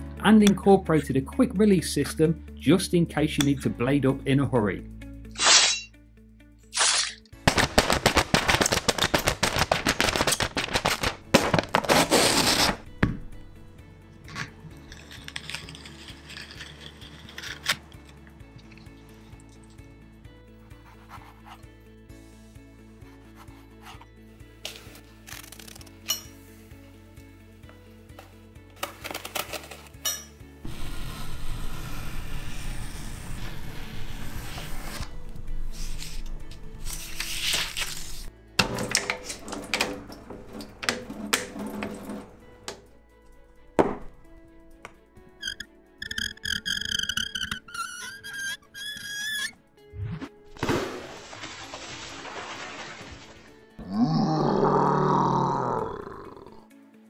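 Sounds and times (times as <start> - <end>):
music: 0.0 - 57.0
blades punching through paper: 7.5 - 12.8
paper tearing rush: 7.5 - 12.8
claws scratching paper: 11.8 - 12.8.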